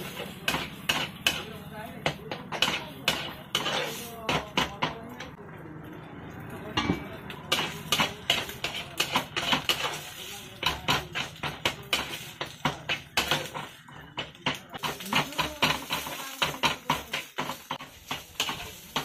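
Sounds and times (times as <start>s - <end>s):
metal spatula scraping a wok: 0.0s - 1.6s, 2.5s - 4.3s, 6.9s - 13.8s, 14.8s - 19.0s.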